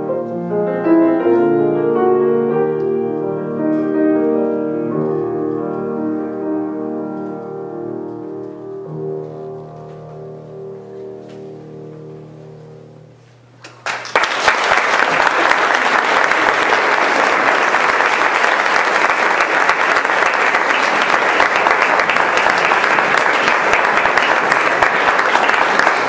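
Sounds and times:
audience applauding: 13.6s - 26.0s.

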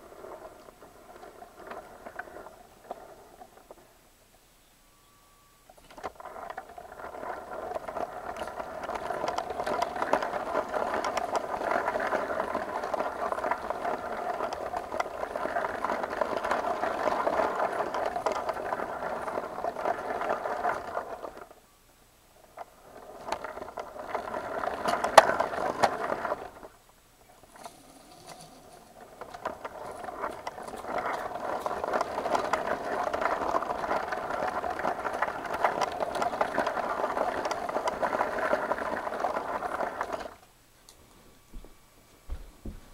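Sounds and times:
toy train motor whirring: 5.9s - 21.6s, 22.4s - 26.8s, 27.4s - 40.4s.

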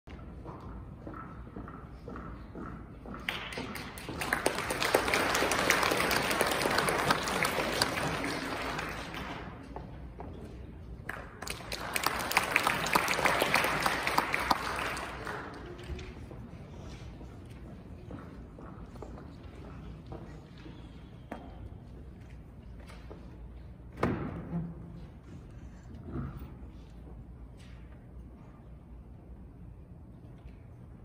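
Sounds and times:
audience applauding: 3.3s - 9.6s, 11.1s - 16.1s.

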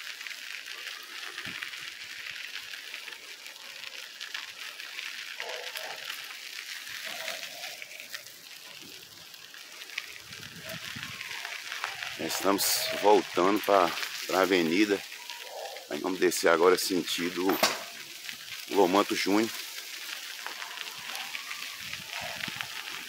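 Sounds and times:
bicycle tyres on dirt road: 0.0s - 23.0s
wind on microphone: 10.3s - 11.2s, 21.8s - 22.7s.

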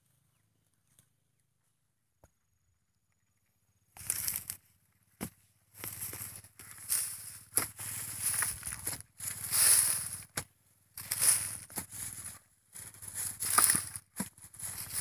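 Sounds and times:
soil clods crunching: 4.0s - 4.6s, 5.2s - 15.0s.

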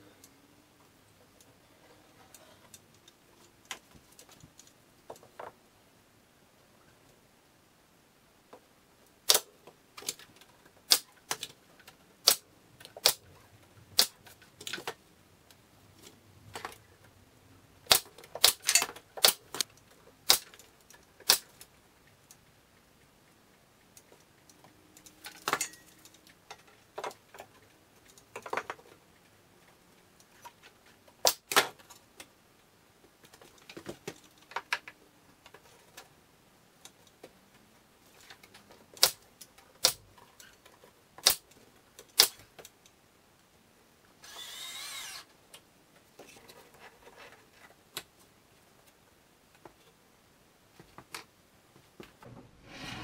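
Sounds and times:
pneumatic nail gun shots: 9.3s - 9.5s, 12.2s - 12.4s, 17.9s - 19.4s, 41.2s - 41.4s, 42.2s - 42.4s, 44.2s - 45.3s.

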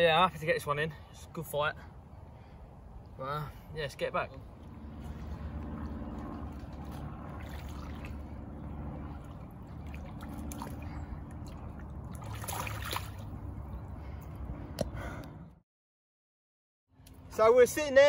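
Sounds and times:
water splashing and trickling: 4.5s - 14.2s.

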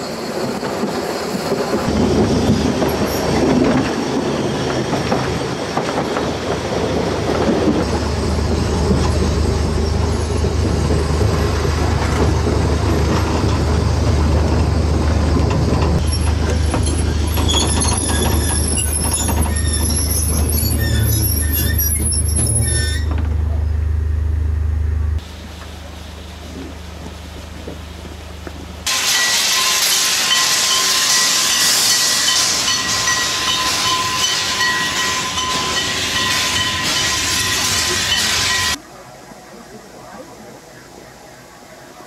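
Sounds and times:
train wheels squealing on rails: 0.0s - 23.8s, 28.9s - 38.8s
train rumbling: 0.0s - 39.3s
steam locomotive venting steam: 25.2s - 42.0s.

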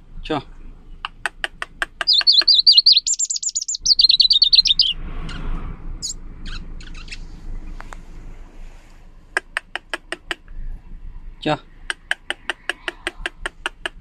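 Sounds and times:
short bird notes and clicks: 1.0s - 7.2s
warbler singing trilled phrase: 2.0s - 7.4s.

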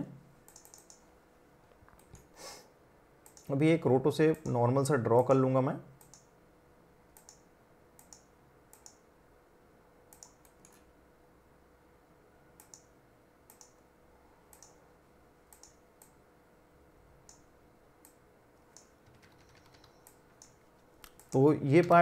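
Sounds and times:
low steady hum: 0.0s - 22.0s
faint computer mouse clicks: 0.5s - 1.0s, 3.2s - 3.5s, 7.2s - 7.4s, 8.0s - 9.0s, 10.1s - 10.9s, 12.6s - 12.9s, 13.5s - 13.8s, 14.5s - 14.8s, 15.5s - 16.2s.

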